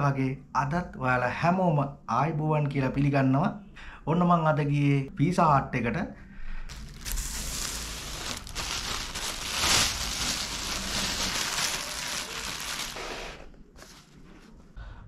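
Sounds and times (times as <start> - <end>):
plastic bag crinkling: 6.7 - 14.7.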